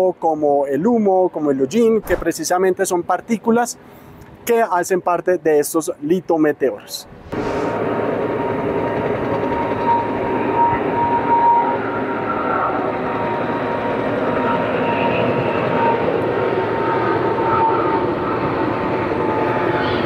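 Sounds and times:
distant jet engines rumbling: 0:06.8 - 0:20.0.

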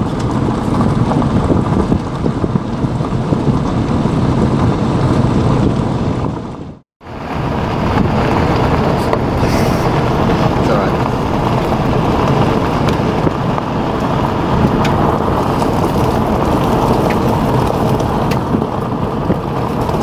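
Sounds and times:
car road and engine rumble: 0:00.0 - 0:20.0.

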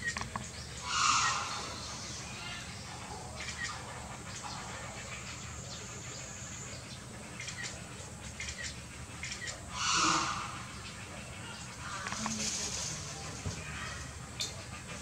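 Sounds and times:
low background hum: 0:00.0 - 0:15.0.

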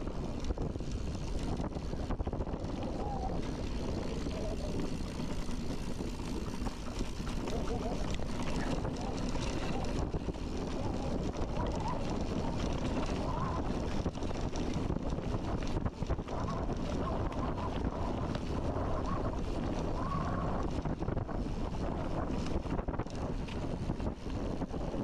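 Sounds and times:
wind rumbling on microphone: 0:00.0 - 0:25.0.

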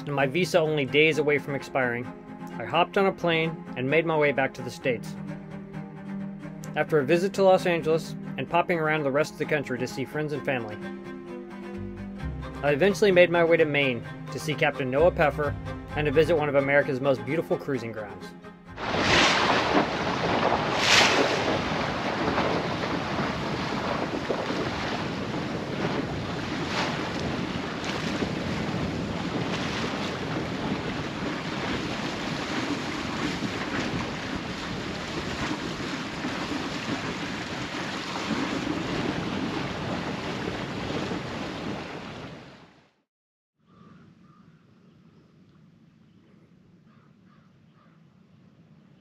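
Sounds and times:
water rushing along boat hull: 0:18.7 - 0:42.8
wind buffeting microphone: 0:18.8 - 0:42.4.

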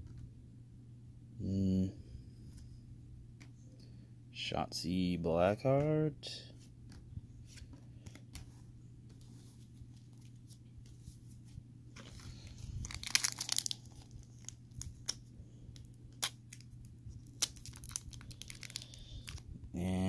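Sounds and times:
foil wrapper crinkling and tearing: 0:12.0 - 0:19.4.

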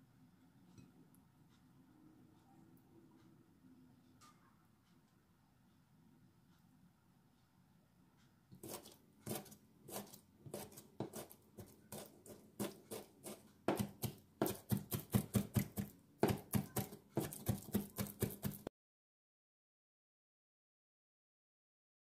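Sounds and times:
knife chopping on cutting board: 0:08.6 - 0:18.7.

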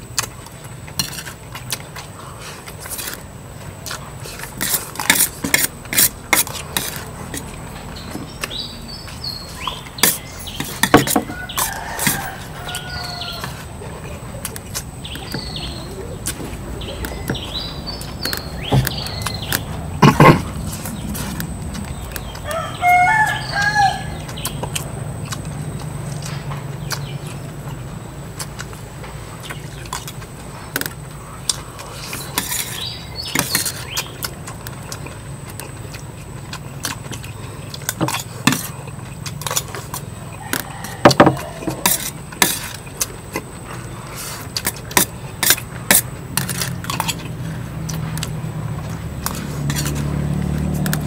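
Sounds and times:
steady low hum: 0:00.0 - 0:51.0
rooster crowing: 0:11.0 - 0:13.8, 0:22.2 - 0:24.5, 0:40.2 - 0:42.0
sharp clicks and knocks: 0:16.2 - 0:22.4.

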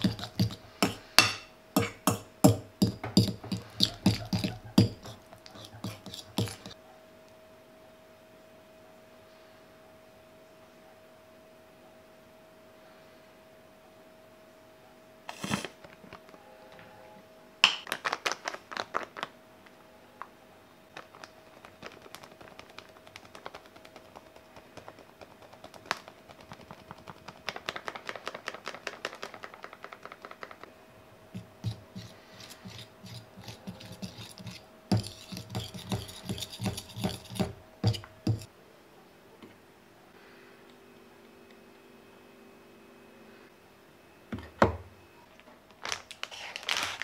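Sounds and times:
fork and spoon scraping glass bowl: 0:00.0 - 0:02.2, 0:02.8 - 0:06.8, 0:31.4 - 0:38.5.

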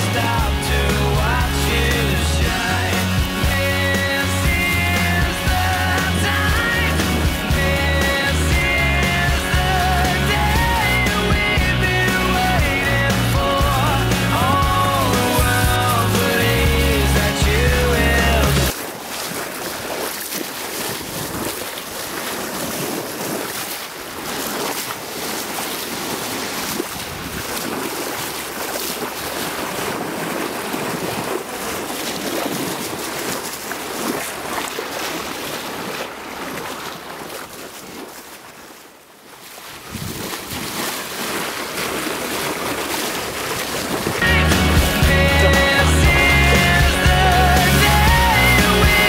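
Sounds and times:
water rushing at a boat bow: 0:00.0 - 0:49.0
wind buffeting microphone: 0:39.8 - 0:40.8.

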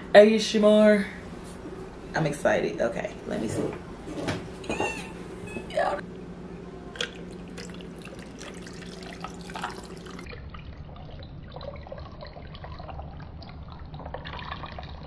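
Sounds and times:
liquid trickling into a jar with ice: 0:07.0 - 0:15.0.

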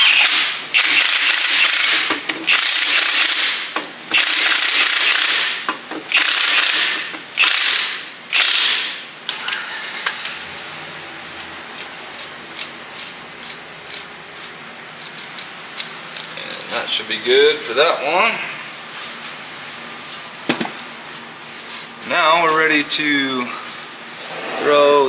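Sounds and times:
cordless power tool bursts: 0:00.0 - 0:08.9.

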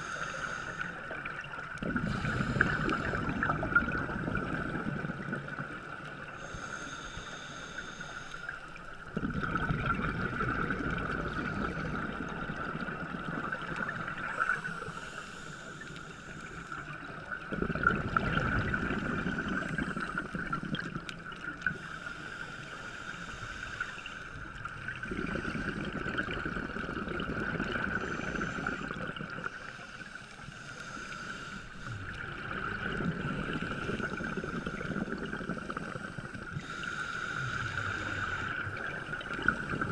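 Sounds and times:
hissing inhalations: 0:00.0 - 0:01.1, 0:06.4 - 0:08.8, 0:14.4 - 0:17.0, 0:21.7 - 0:24.4, 0:27.9 - 0:32.2, 0:33.7 - 0:39.9
exhaled bubbles underwater: 0:00.0 - 0:06.6, 0:08.5 - 0:22.1, 0:23.8 - 0:30.0, 0:31.8 - 0:39.9.

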